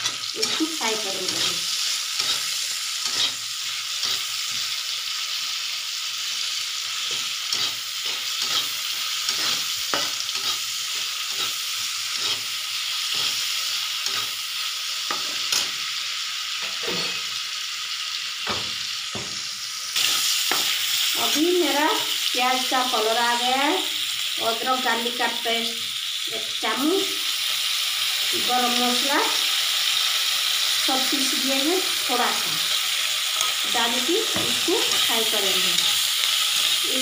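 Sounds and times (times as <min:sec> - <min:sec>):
metal spatula scraping a pan: 0:00.0 - 0:04.8, 0:07.0 - 0:14.4
onions sizzling in hot oil: 0:00.0 - 0:37.0.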